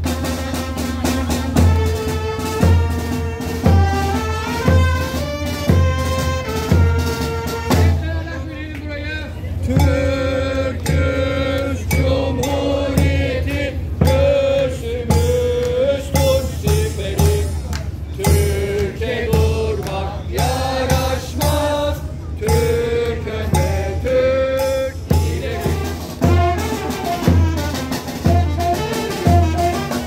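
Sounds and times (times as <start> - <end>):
brass band playing: 0.0 - 8.2, 25.2 - 30.0
bass drum beat: 0.9 - 8.2, 9.6 - 29.9.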